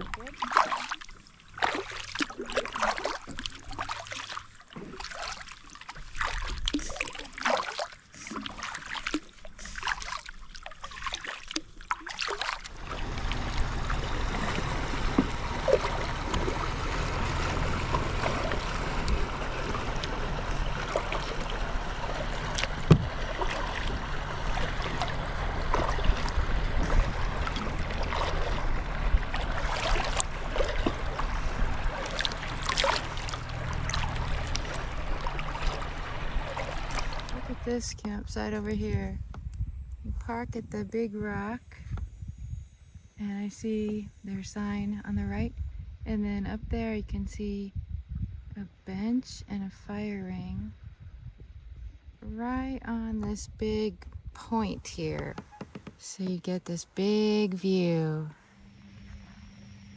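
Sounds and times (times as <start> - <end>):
paddle splashing in water: 0.0 - 37.7
rushing water and air: 0.0 - 37.9
low rumble: 11.8 - 59.9.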